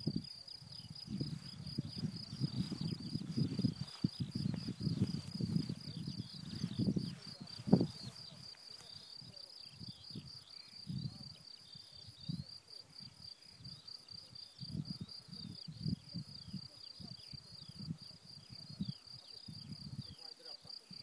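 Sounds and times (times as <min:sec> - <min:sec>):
wind buffeting microphone: 0:00.0 - 0:08.5, 0:09.8 - 0:11.4, 0:14.6 - 0:20.2
crickets trilling: 0:00.0 - 0:21.0.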